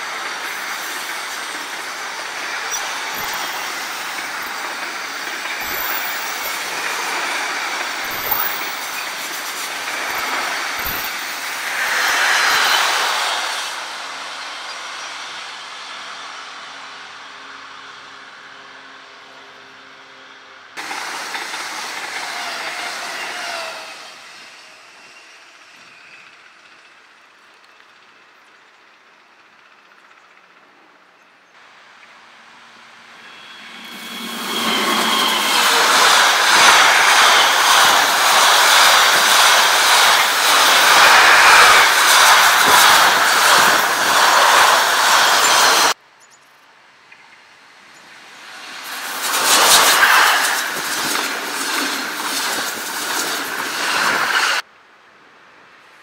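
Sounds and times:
wheels clicking over rails: 0:00.0 - 0:13.3, 0:34.2 - 0:46.0
electric train passing close by: 0:00.0 - 0:46.0, 0:47.6 - 0:54.7
quieter train noise: 0:00.0 - 0:56.0.

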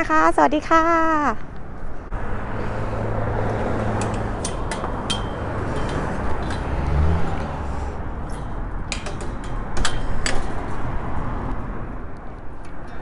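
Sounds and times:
gate latch clicking and rattling: 0:04.0 - 0:07.2, 0:08.3 - 0:10.8.

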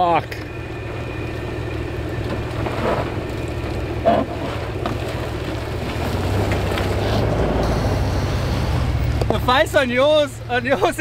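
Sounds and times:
car engine running at low revs: 0:00.0 - 0:11.0.

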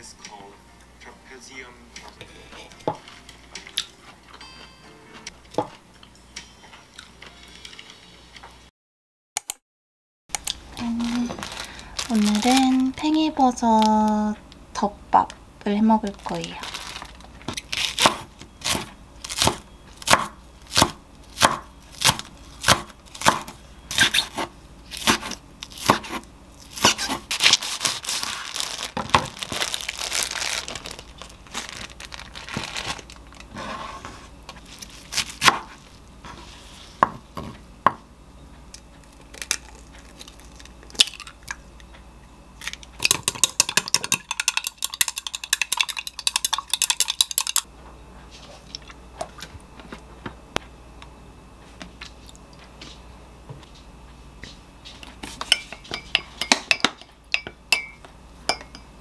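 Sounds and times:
knife chopping on wooden board: 0:18.0 - 0:26.2, 0:26.8 - 0:27.3, 0:35.4 - 0:36.4, 0:37.0 - 0:38.0
egg beaten in glass cup: 0:43.0 - 0:47.7.

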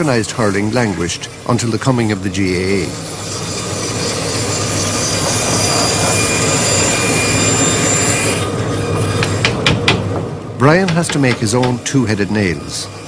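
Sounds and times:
metal-on-metal screech: 0:03.1 - 0:09.0.

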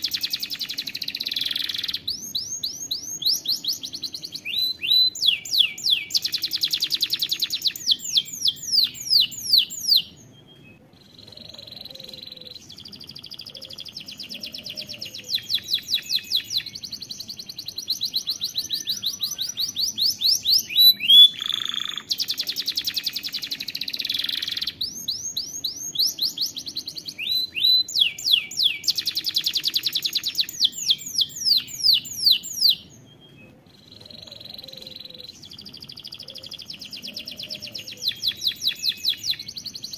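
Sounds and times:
canary singing trilled phrases: 0:00.0 - 0:39.9.

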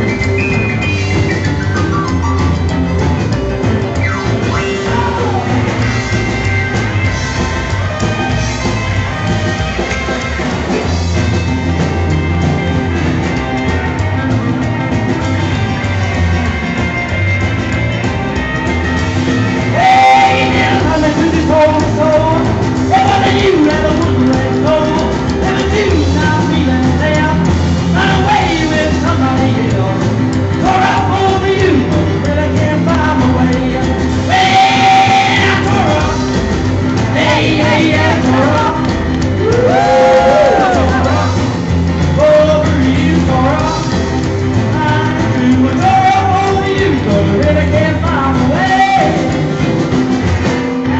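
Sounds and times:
drum kit: 0:00.0 - 0:50.9
electric guitar: 0:00.0 - 0:50.9
man singing: 0:04.4 - 0:06.2, 0:19.5 - 0:49.7.

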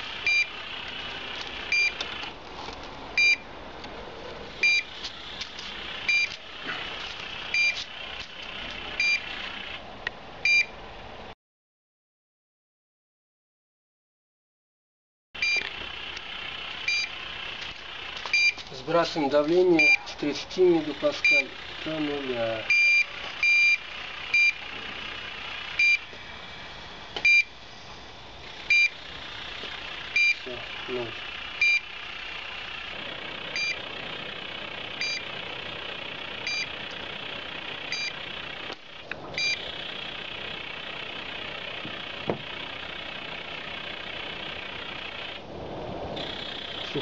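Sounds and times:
short high beeps: 0:01.7 - 0:02.0, 0:03.2 - 0:03.4, 0:04.6 - 0:04.9, 0:06.1 - 0:06.4, 0:07.5 - 0:07.8, 0:09.0 - 0:09.2, 0:15.4 - 0:15.6, 0:16.9 - 0:17.1, 0:18.3 - 0:18.6, 0:19.8 - 0:20.0, 0:22.7 - 0:24.6, 0:27.2 - 0:27.5, 0:28.7 - 0:28.9.

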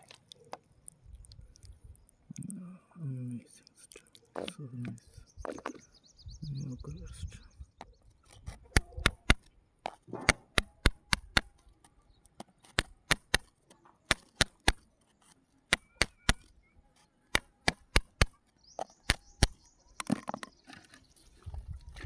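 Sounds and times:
stick clicking against pebbles: 0:08.2 - 0:16.5.

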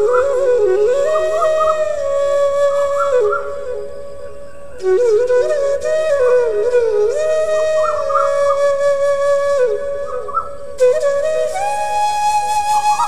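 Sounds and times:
slow flute-like melody: 0:00.0 - 0:13.0.

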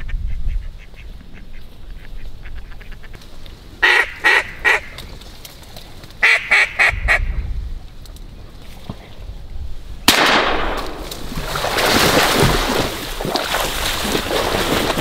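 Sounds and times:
duck quacking: 0:00.0 - 0:03.2, 0:03.8 - 0:05.0, 0:06.2 - 0:07.3
low wind rumble: 0:00.0 - 0:15.0.

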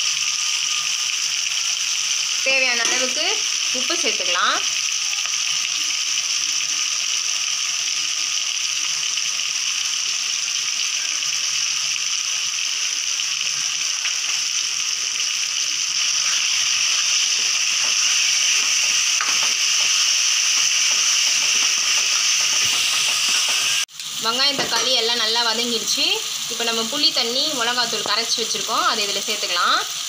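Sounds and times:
masala sizzling in hot oil: 0:00.0 - 0:30.0.

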